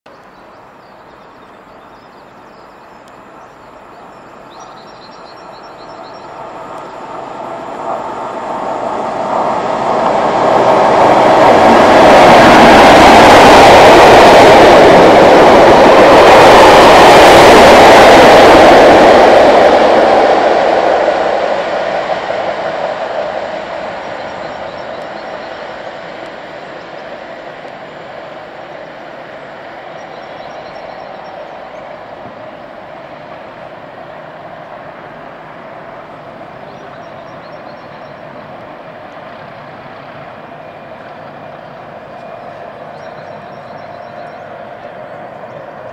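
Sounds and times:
diesel locomotive passing: 0:00.1 - 0:45.9
train rolling noise: 0:00.1 - 0:45.9.

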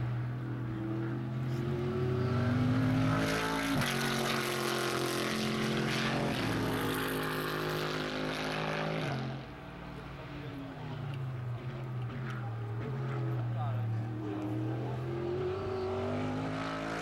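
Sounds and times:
race car engine accelerating: 0:00.3 - 0:09.5, 0:10.8 - 0:17.0.

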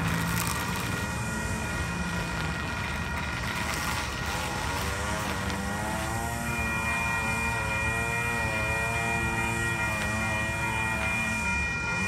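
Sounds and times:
faint constant whine: 0:00.0 - 0:12.0
traffic noise: 0:00.0 - 0:12.0.

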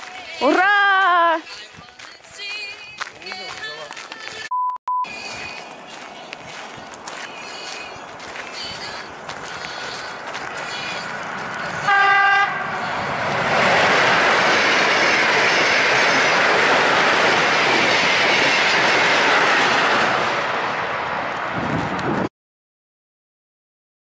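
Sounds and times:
train wheels rushing on rails: 0:09.4 - 0:22.3
train horn blast: 0:11.8 - 0:12.7.

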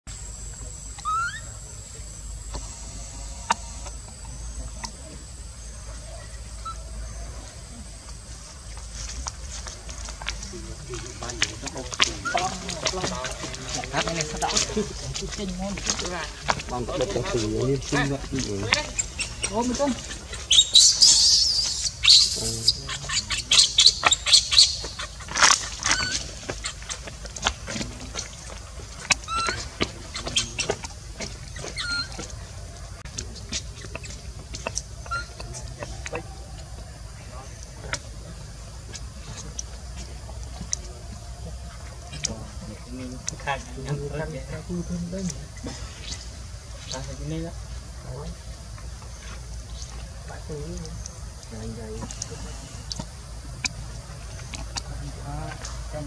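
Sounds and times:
faint high whine: 0:00.1 - 0:52.9
baby monkey squealing: 0:01.0 - 0:01.6, 0:06.5 - 0:07.2, 0:11.9 - 0:13.3, 0:18.6 - 0:27.6, 0:29.0 - 0:32.3, 0:33.5 - 0:36.2
dry leaves crackling: 0:02.6 - 0:56.0.

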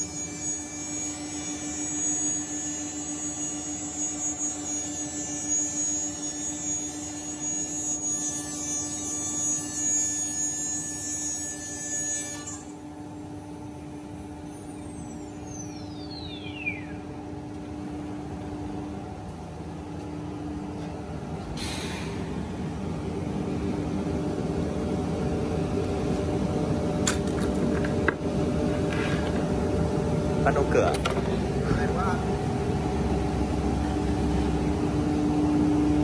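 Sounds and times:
cnc router humming: 0:00.0 - 0:21.5, 0:22.2 - 0:36.0
high whining tones: 0:12.3 - 0:17.3
spindle whine winding down: 0:12.4 - 0:17.3.

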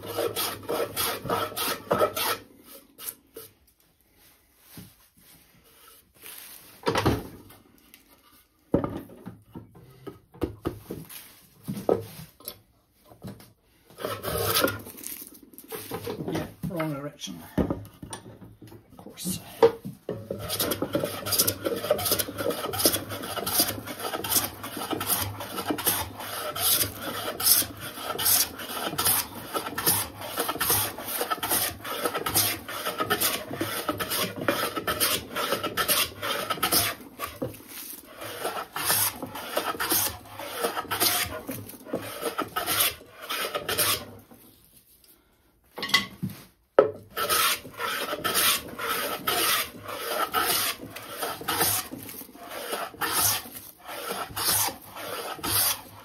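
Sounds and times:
hand plane shaving wood: 0:00.0 - 0:03.6, 0:13.8 - 0:16.9, 0:19.4 - 0:44.4, 0:47.0 - 0:56.0.

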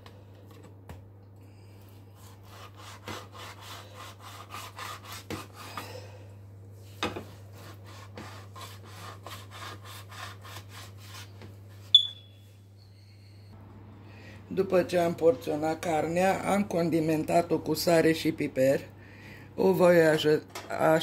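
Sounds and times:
knife sawing through meat: 0:02.2 - 0:05.7, 0:07.6 - 0:11.3.

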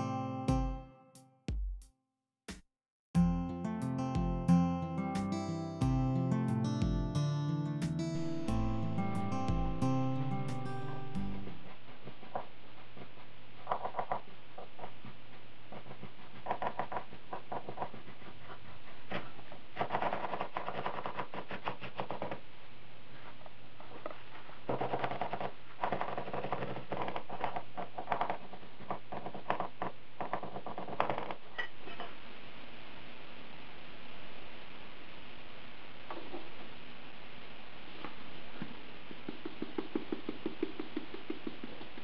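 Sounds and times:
cleaver chopping on wooden board: 0:39.1 - 0:42.0.

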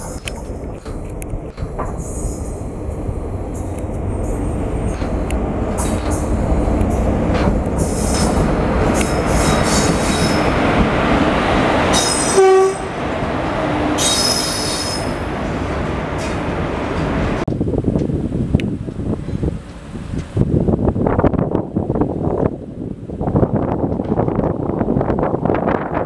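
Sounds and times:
train wheels rumbling on rails: 0:00.0 - 0:26.0
high wheel squeal: 0:09.0 - 0:10.6, 0:11.9 - 0:12.8, 0:14.0 - 0:15.2
train horn blast: 0:11.9 - 0:13.1.

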